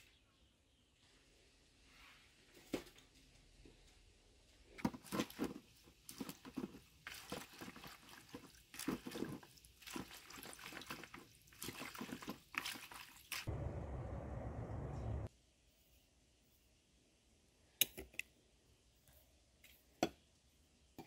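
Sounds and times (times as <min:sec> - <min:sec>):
hands swishing wet leaves: 0:05.0 - 0:13.5.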